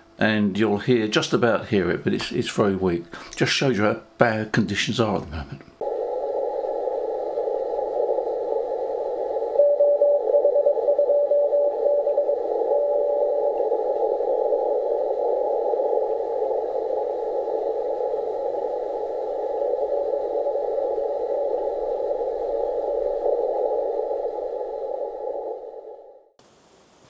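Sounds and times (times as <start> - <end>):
radio static hiss: 5.2 - 26.1
morse code beacon tone: 9.5 - 14.7.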